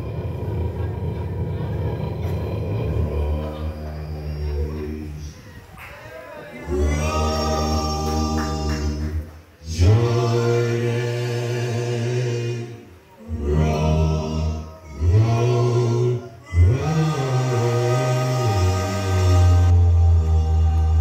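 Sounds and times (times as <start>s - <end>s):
men singing in close harmony: 6.6s - 21.0s.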